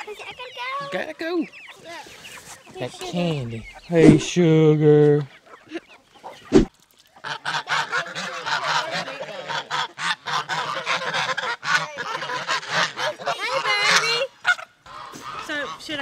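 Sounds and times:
short thump: 3.9s - 4.3s
geese honking: 7.2s - 16.0s.

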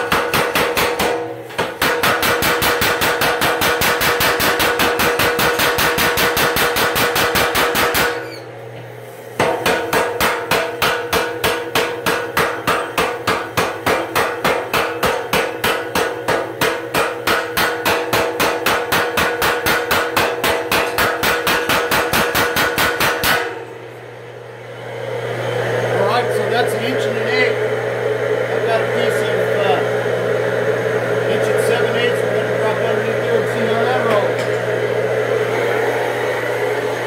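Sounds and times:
power hammer pounding steel: 0.0s - 8.2s, 9.4s - 23.7s.

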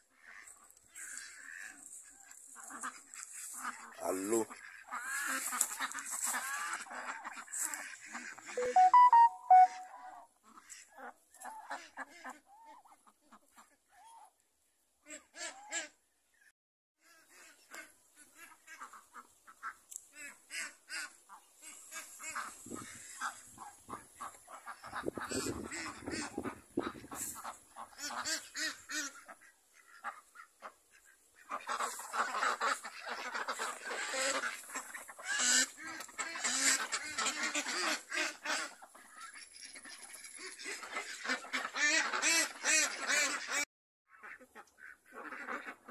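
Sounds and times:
ducks quacking: 0.2s - 13.8s, 17.1s - 45.9s.

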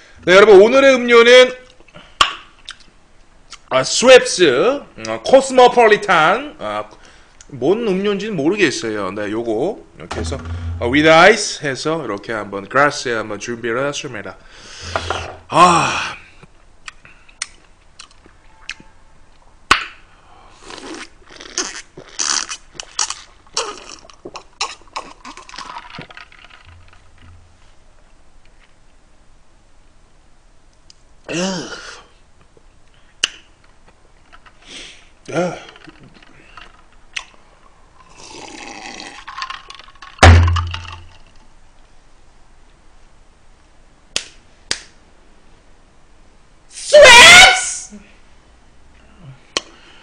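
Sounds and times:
person sipping: 20.5s - 26.0s, 38.0s - 39.6s
drinking soda: 38.0s - 41.2s.

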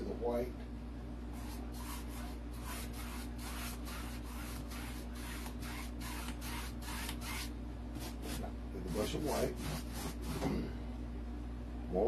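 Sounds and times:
steady low hum: 0.0s - 12.0s
paintbrush swishing on canvas: 1.4s - 10.5s.

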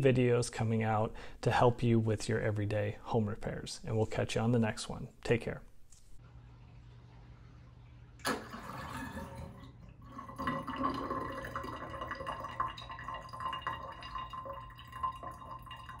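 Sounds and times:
water dripping in sink drain: 8.2s - 16.0s.

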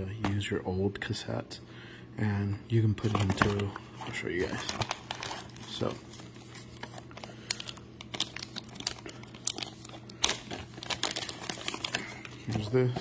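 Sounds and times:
plastic bag crinkling: 3.0s - 13.0s.

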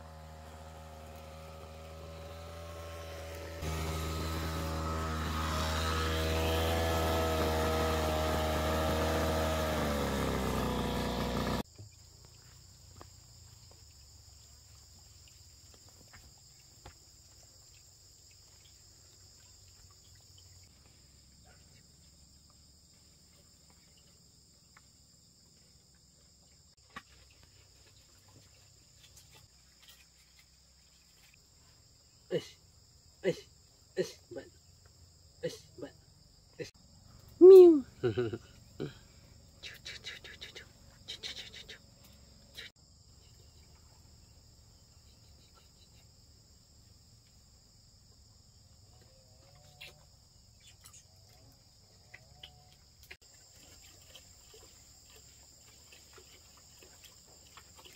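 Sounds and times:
brush cutter engine running: 0.0s - 11.6s
insects buzzing: 0.0s - 57.9s.

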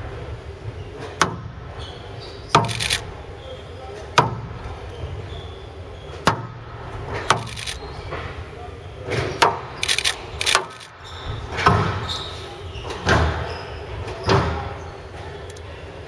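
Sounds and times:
squash ball struck by rackets: 1.2s - 1.6s, 4.2s - 4.6s.

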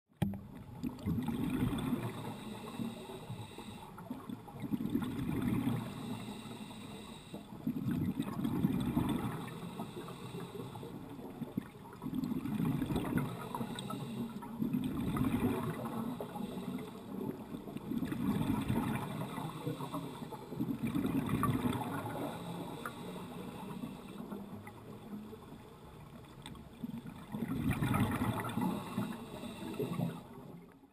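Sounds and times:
underwater bubbling: 0.1s - 30.9s
diver breathing through regulator: 1.8s - 4.2s, 5.4s - 7.7s, 9.0s - 11.1s, 13.1s - 14.6s, 15.5s - 17.4s, 18.3s - 20.7s, 21.6s - 24.6s, 27.9s - 30.4s.

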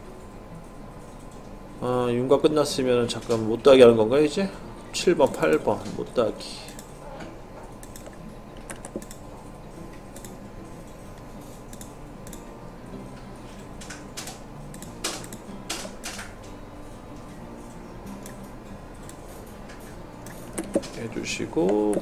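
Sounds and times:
faint steady hum: 0.0s - 22.0s
computer mouse and keyboard clicks: 7.7s - 9.2s, 10.1s - 10.4s, 11.4s - 12.4s, 20.2s - 21.0s.

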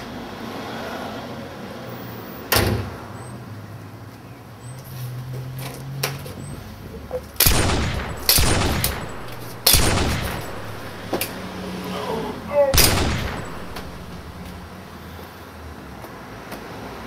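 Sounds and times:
handgun shots echoing: 7.4s - 11.6s, 12.7s - 14.8s.

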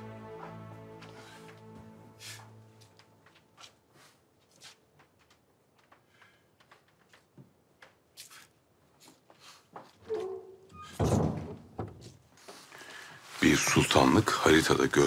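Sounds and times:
quiet footsteps: 0.0s - 10.5s.

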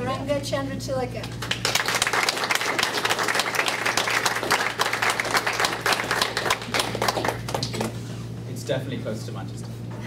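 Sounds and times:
people applauding: 1.4s - 8.0s.

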